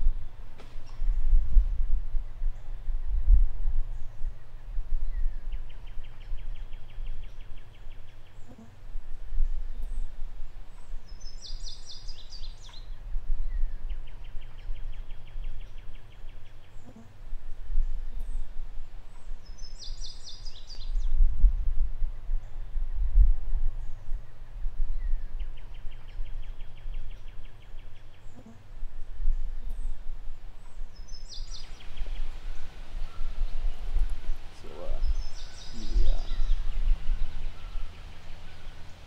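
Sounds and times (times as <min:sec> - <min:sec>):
birds singing: 0:09.5 - 0:17.2, 0:17.8 - 0:21.2, 0:23.8 - 0:39.0
low rumble: 0:28.7 - 0:39.0.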